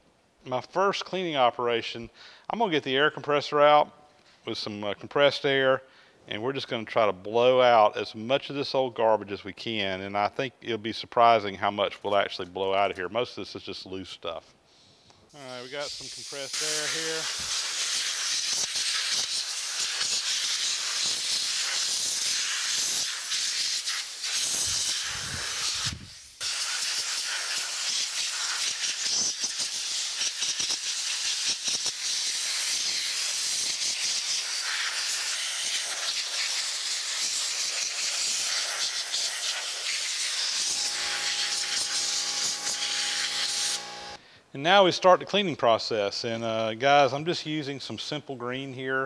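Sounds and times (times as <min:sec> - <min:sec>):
compressed air hissing: 0:14.8 - 0:44.2.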